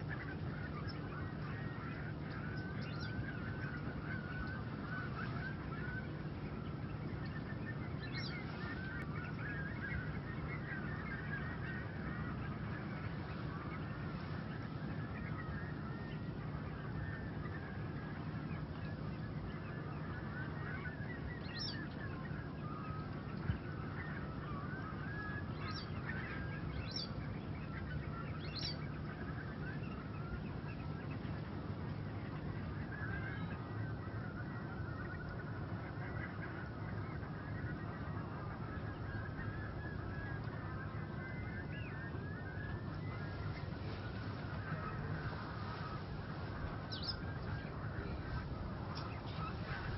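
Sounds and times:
bird wavering call: 0:00.0 - 0:49.9
low background rumble: 0:00.0 - 0:49.9
steady low hum: 0:00.0 - 0:49.9
waterbirds chirping: 0:00.0 - 0:49.9.

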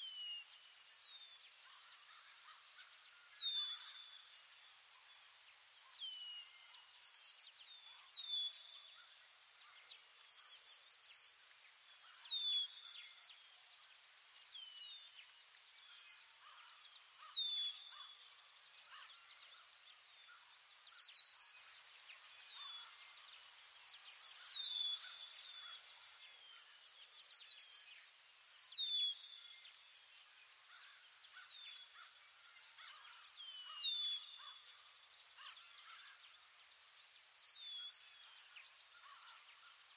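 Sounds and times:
bird chirping: 0:14.4 - 0:29.8.

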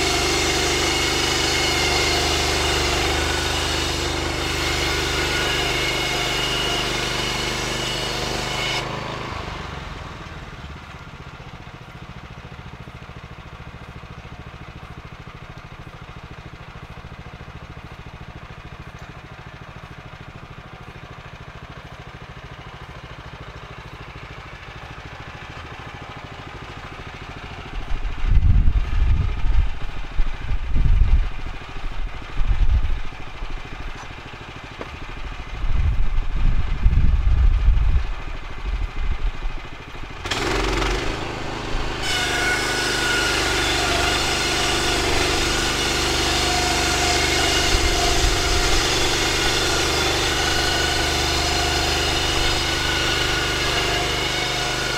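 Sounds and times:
gasoline engine running: 0:00.0 - 0:54.9
heavy low rumbling bursts: 0:27.8 - 0:33.8, 0:35.1 - 0:39.6.

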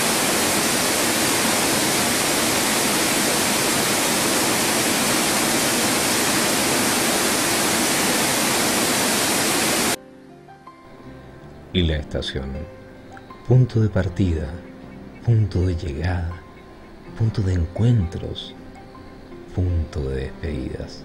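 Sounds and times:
water rushing over weir: 0:00.0 - 0:10.0.

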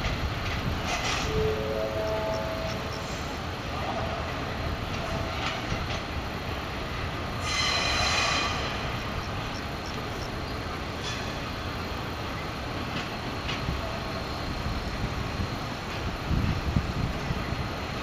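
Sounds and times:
train rolling with low rumble: 0:00.0 - 0:18.0
train wheels squealing: 0:07.4 - 0:08.9, 0:11.0 - 0:11.4.

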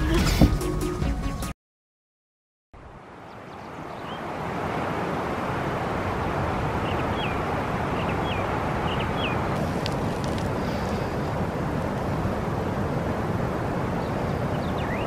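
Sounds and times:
wind: 0:02.8 - 0:15.0
flowing water: 0:02.9 - 0:15.0
small bird chirping: 0:14.5 - 0:15.0.

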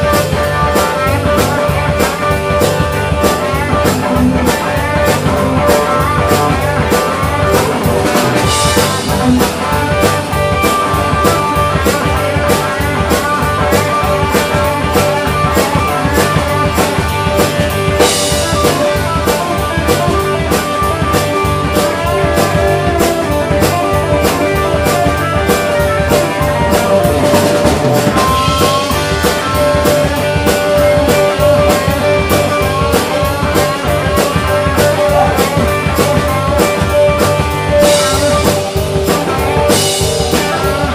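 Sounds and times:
rock band playing: 0:00.0 - 0:40.9.

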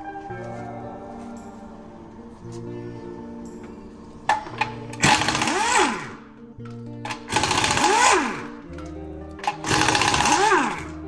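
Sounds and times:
background music: 0:00.0 - 0:11.0
pneumatic impact wrench rattling: 0:04.3 - 0:06.2, 0:07.1 - 0:08.6, 0:09.4 - 0:11.0.

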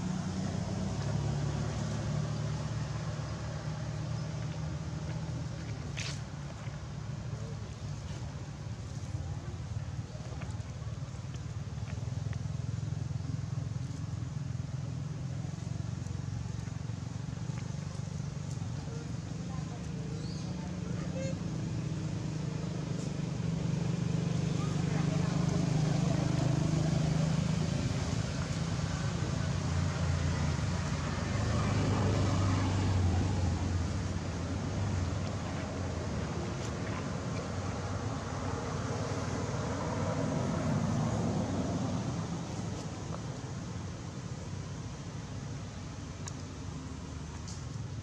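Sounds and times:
engine low rumble: 0:00.0 - 0:48.0
faint ticks: 0:46.2 - 0:46.5.

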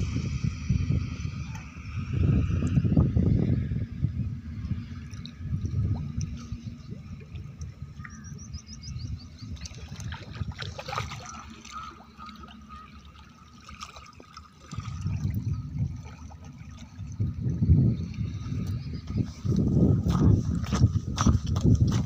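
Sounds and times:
low microphone rumble: 0:00.0 - 0:12.8, 0:14.6 - 0:22.0
water sloshing and splashing: 0:04.4 - 0:22.0
bird chirping: 0:08.0 - 0:09.6.

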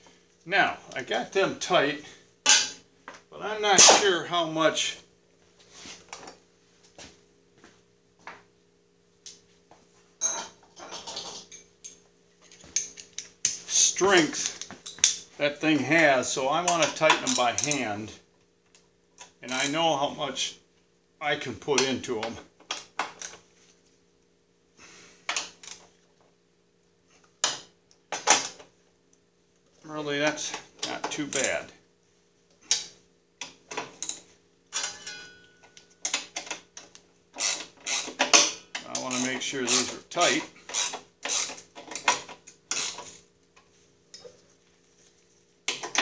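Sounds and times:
faint steady hum: 0:00.0 - 0:46.0
metal hand tools clinking: 0:34.7 - 0:36.2.

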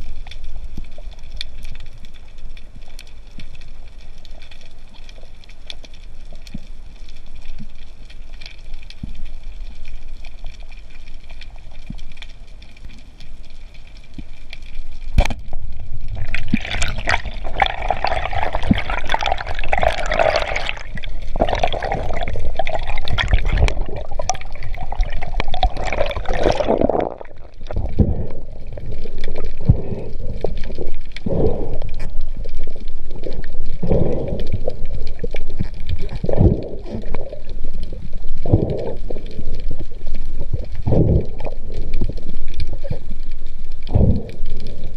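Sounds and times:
underwater bubbling and gurgling: 0:00.0 - 0:44.9.

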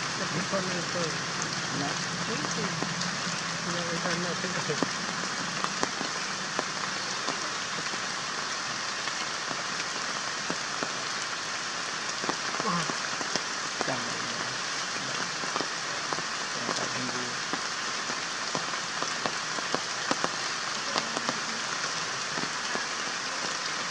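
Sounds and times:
rain pattering on leaves: 0:00.0 - 0:23.9.

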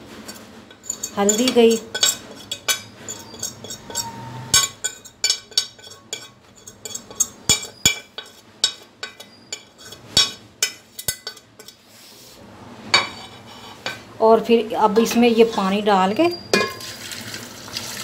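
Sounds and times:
metal fork scraping a china plate: 0:00.2 - 0:11.9, 0:13.0 - 0:14.0.

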